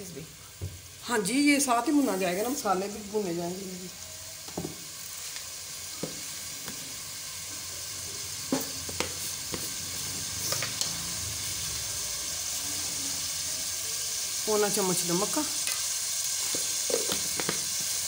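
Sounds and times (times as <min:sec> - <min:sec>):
chicken sizzling in oil: 0:00.0 - 0:18.0.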